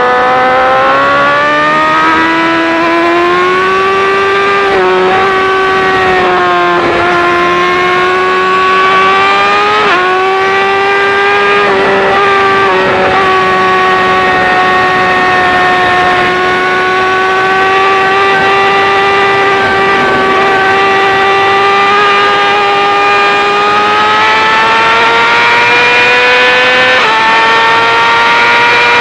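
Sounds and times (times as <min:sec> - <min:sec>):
motorcycle engine revving high: 0:00.0 - 0:29.0.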